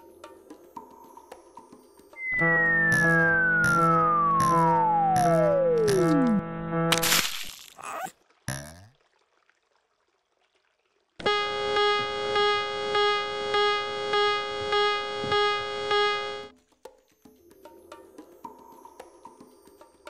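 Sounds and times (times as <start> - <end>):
cartoon sound sliding down in pitch: 2.2 - 6.4
long buzzy musical note: 2.2 - 6.9.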